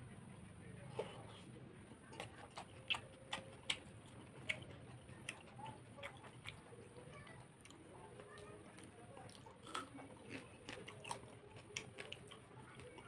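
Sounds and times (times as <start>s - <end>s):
person chewing wetly: 2.0s - 7.0s, 7.6s - 13.0s.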